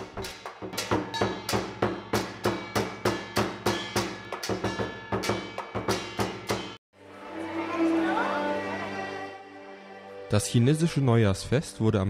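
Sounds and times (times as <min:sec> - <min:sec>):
barrel drum beating: 0:00.0 - 0:06.8
hand cymbals clashing: 0:00.0 - 0:06.8
gong: 0:00.2 - 0:06.8.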